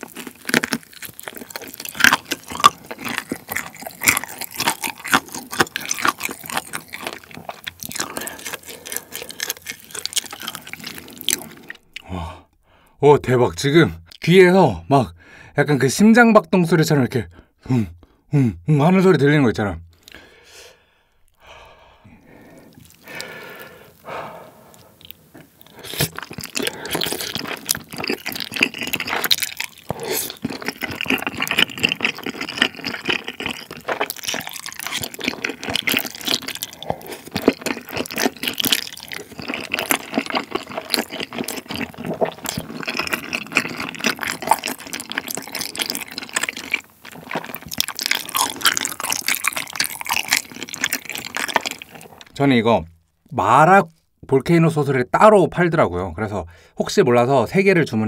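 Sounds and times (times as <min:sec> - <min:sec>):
wet slurping and chewing: 0:00.0 - 0:12.5, 0:21.3 - 0:52.4.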